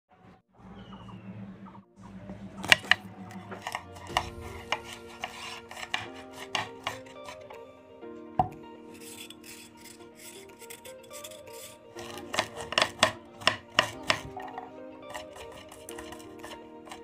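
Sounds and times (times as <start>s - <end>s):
soft background music: 0.1s - 17.0s
knife chopping on wooden board: 2.6s - 7.4s, 12.0s - 17.0s.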